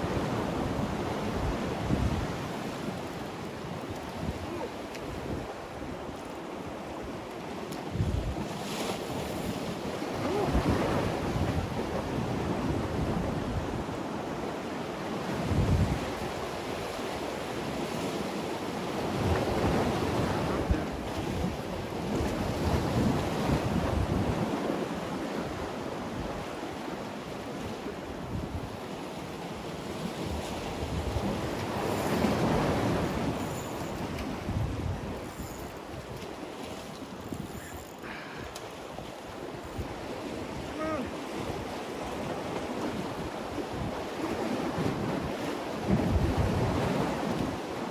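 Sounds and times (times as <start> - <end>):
wind buffeting microphone: 0.0 - 6.1, 7.8 - 14.0, 15.3 - 16.3, 30.0 - 36.3, 38.9 - 47.6
sea waves washing against rocks: 0.0 - 47.9.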